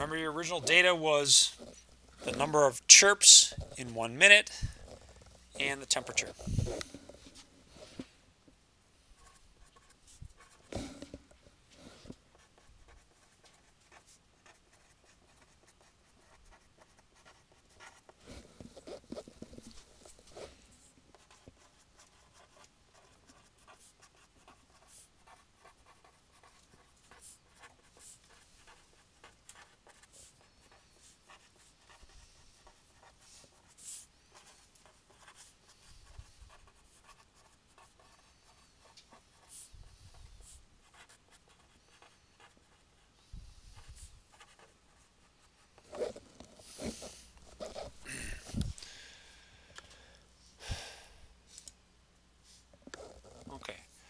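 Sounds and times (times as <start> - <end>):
pen scratching while writing: 9.2 - 11.2, 11.8 - 43.0, 43.8 - 48.0.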